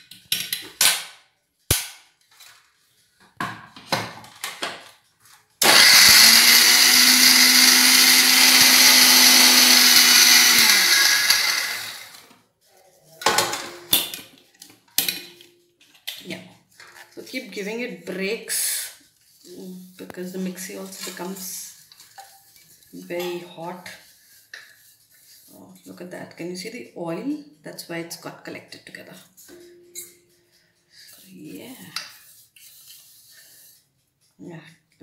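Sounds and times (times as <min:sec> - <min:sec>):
mixer grinder grinding: 0:05.6 - 0:12.3.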